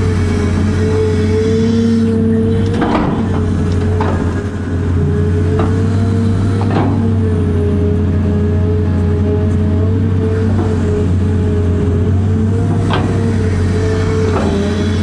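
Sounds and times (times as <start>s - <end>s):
excavator engine humming: 0.0s - 15.0s
excavator bucket clunks: 2.6s - 4.8s, 6.6s - 7.2s, 12.8s - 13.3s.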